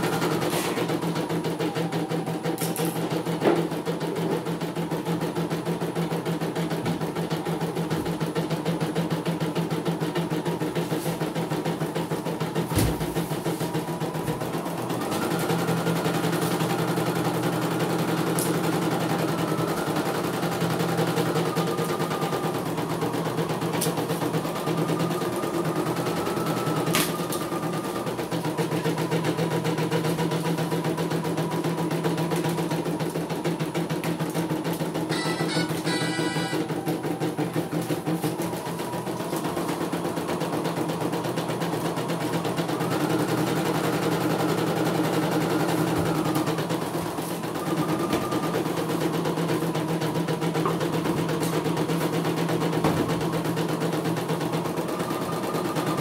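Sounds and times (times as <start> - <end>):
high-pitched whine: 34.8 - 40.8.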